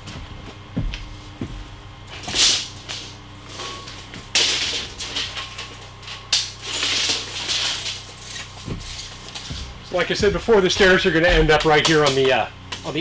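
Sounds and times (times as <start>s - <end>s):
dull knocks: 9.5s - 11.9s.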